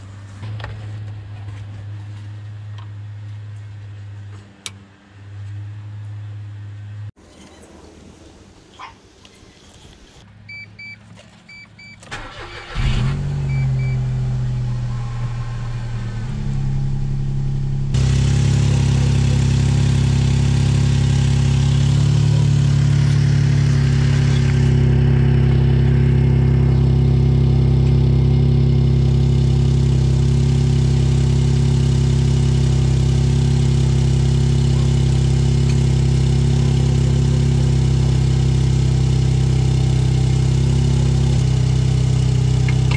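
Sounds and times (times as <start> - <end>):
car engine starting and idling: 11.5 - 42.9
short electronic beeps: 13.5 - 14.0.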